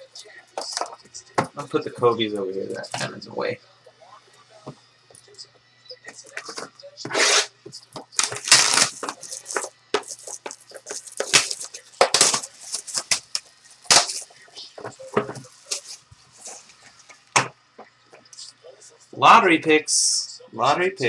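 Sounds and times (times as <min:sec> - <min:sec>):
plastic wrap crinkling: 0:08.0 - 0:17.3.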